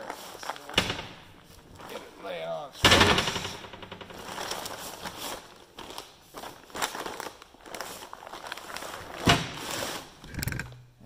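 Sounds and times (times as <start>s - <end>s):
paper bags crinkling: 0.0s - 2.6s, 4.1s - 10.2s
handling knocks: 0.7s - 2.0s, 2.8s - 5.0s.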